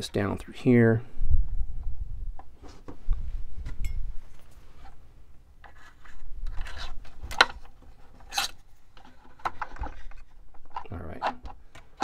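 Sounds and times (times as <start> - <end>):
rubbing and scraping of tubing: 5.6 - 12.0.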